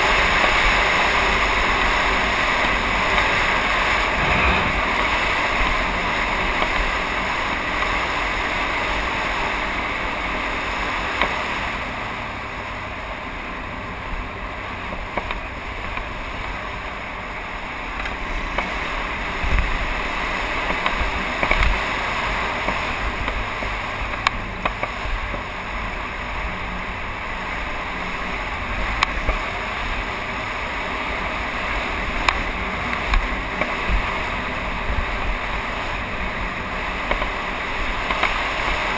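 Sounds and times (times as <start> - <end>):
trail bike engine running: 0.0 - 38.9
wind on microphone: 3.4 - 7.0.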